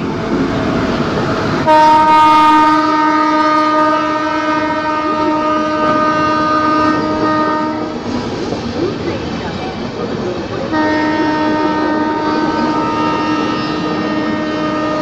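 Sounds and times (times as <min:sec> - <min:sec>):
train coaches rushing past: 0:00.0 - 0:15.0
locomotive air horn blast: 0:01.6 - 0:08.0, 0:10.7 - 0:15.0.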